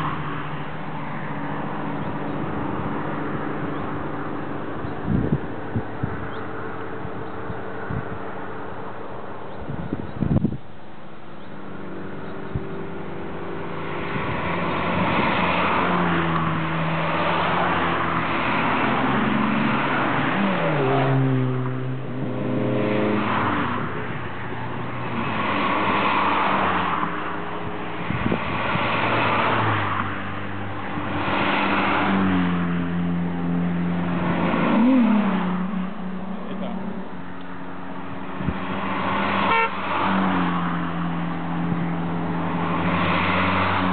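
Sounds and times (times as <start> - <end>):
cars accelerating past: 11.5 - 43.9.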